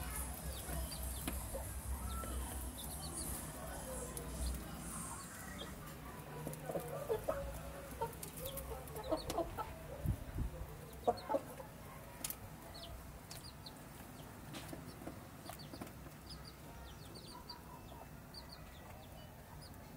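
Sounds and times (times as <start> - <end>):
chickens clucking softly: 5.4 - 13.8.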